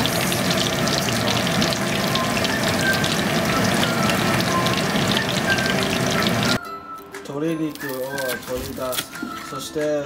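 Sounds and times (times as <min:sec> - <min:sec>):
chicken sizzling in hot oil: 0:00.0 - 0:06.6.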